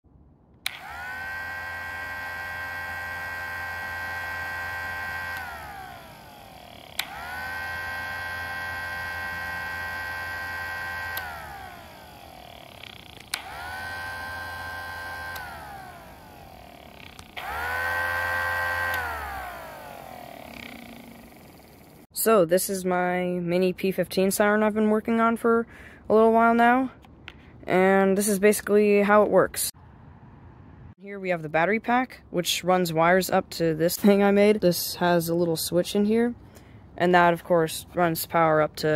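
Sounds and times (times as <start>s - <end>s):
low motor hum: 0.1s - 22.1s
mechanical siren wailing: 0.7s - 22.1s.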